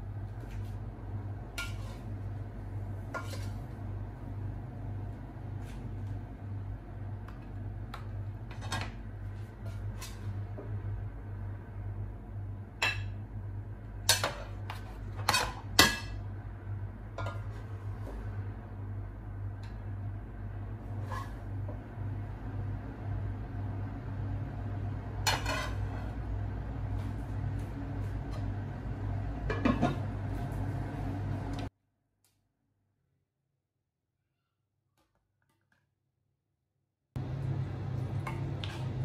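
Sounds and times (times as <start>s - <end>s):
steady low hum: 0.0s - 31.7s
spoon scraping a pot: 1.6s - 2.2s, 3.1s - 3.6s, 21.0s - 21.5s, 25.2s - 26.1s.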